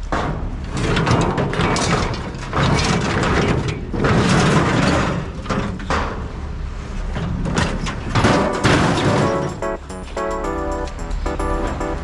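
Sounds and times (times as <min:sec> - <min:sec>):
scrap metal clattering: 0:00.1 - 0:06.4, 0:07.0 - 0:09.8.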